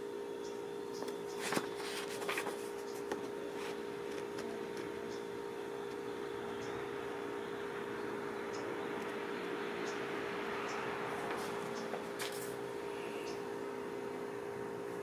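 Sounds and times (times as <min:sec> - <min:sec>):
steady background hum: 0:00.0 - 0:15.0
paper rustling: 0:01.0 - 0:04.9, 0:11.3 - 0:12.6.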